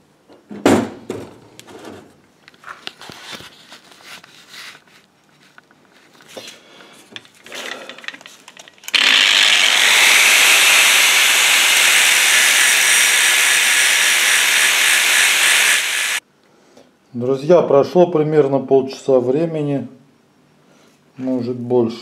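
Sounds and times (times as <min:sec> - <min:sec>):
faint handling sounds: 0:01.6 - 0:08.9
angle grinder grinding steel: 0:08.9 - 0:16.2.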